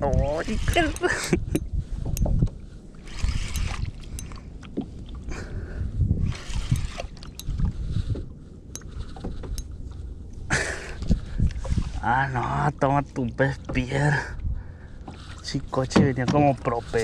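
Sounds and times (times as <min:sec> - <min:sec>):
water lapping against kayak hull: 0:00.0 - 0:17.0
wind rumbling on microphone: 0:00.0 - 0:17.0.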